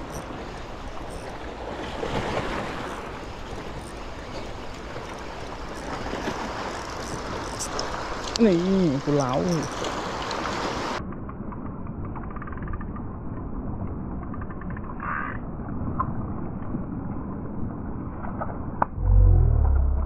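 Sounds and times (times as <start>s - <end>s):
faint ticks: 6.7s - 8.5s.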